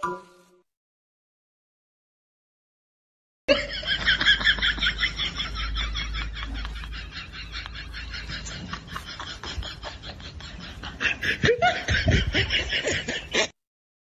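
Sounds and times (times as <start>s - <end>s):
person laughing in rhythmic pulses: 3.5s - 13.6s.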